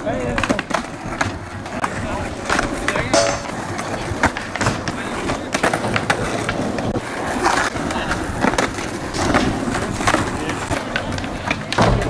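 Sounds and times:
skateboard clacks: 0.0 - 12.0
skateboard wheels rolling on asphalt: 0.0 - 12.0.

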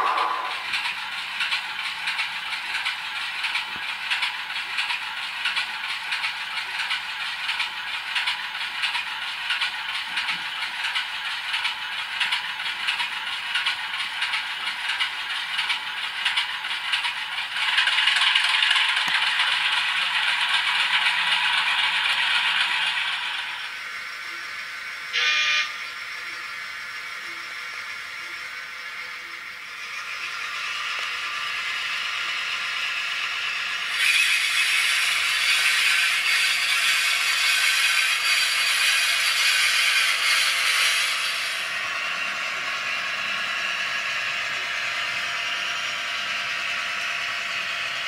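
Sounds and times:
model train rattling on track: 0.0 - 48.0.

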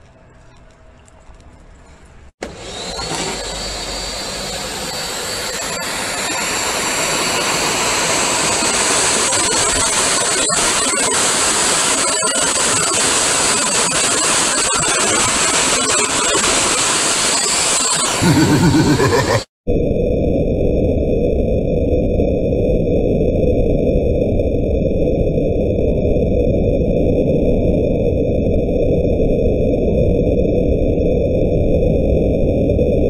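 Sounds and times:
vacuum cleaner running: 2.4 - 19.5.

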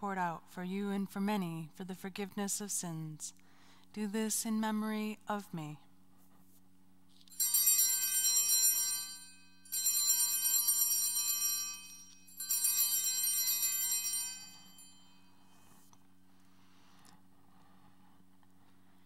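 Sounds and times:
altar bells jingling: 7.3 - 15.7.

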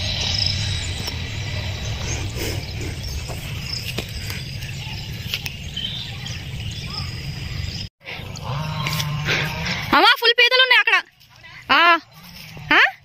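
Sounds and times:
steady low rumble: 0.0 - 7.9.

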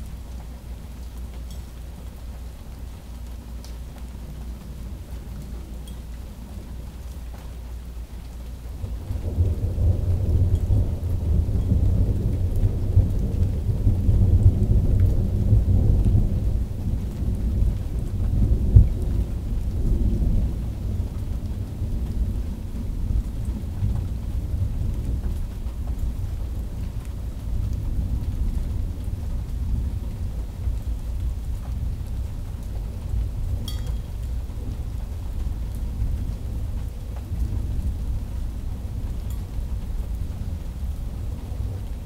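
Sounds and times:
thunder rumbling: 8.7 - 42.0.

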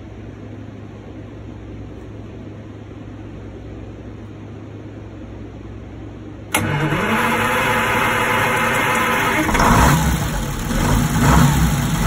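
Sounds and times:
steady low hum: 0.0 - 12.0
diesel engine starting: 6.5 - 12.0.

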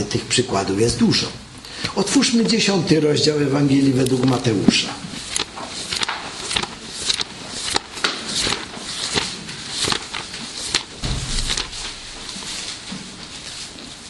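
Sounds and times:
paper pages rustling: 3.9 - 13.6
dull bump: 11.0 - 12.8.

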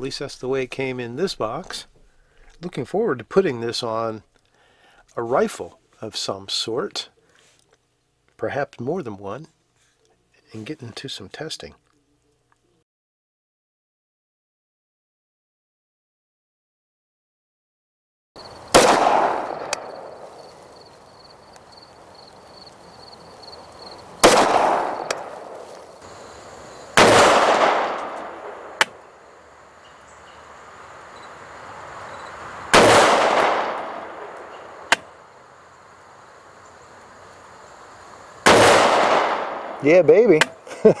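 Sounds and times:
rifle shots with echo: 18.7 - 20.3, 24.2 - 25.7, 27.0 - 29.1, 32.7 - 35.0, 38.4 - 40.4.

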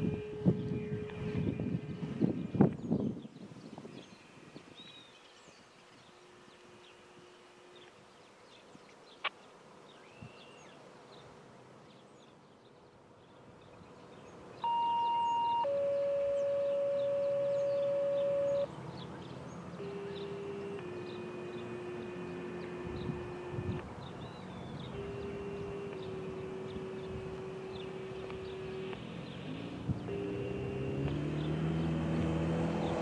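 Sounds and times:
two-tone pager tones over radio: 0.0 - 1.7, 14.6 - 18.7, 19.8 - 23.8, 24.5 - 31.2
faint low steady tone: 14.6 - 18.7.

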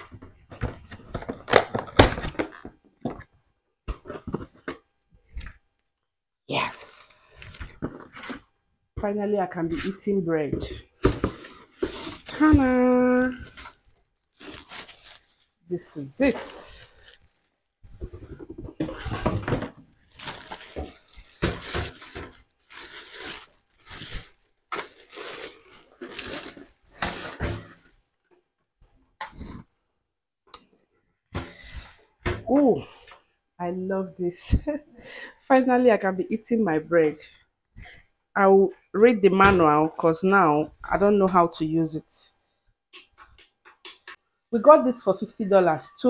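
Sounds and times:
cardboard box packaging crackling: 11.0 - 15.5, 18.6 - 27.6
plastic wrapping crinkling: 11.0 - 15.6, 17.0 - 27.8.

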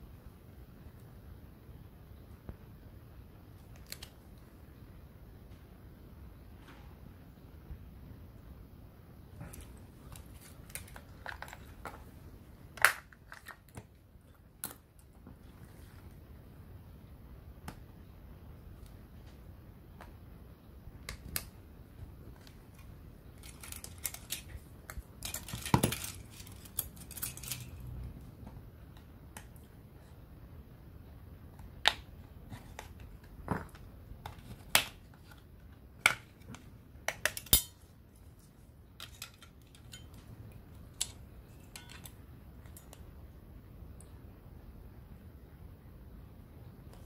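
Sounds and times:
plastic clips snapping: 12.7 - 14.0, 21.0 - 21.6, 22.4 - 28.0, 31.5 - 37.8, 40.8 - 43.0.

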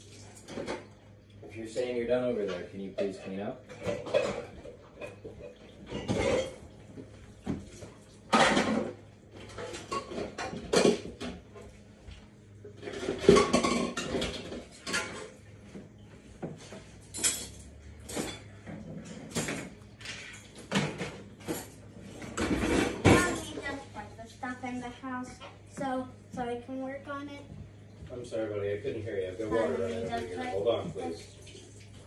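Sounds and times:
dishes and cutlery clattering: 0.4 - 1.0, 2.4 - 11.7, 12.7 - 15.5, 16.4 - 23.8.

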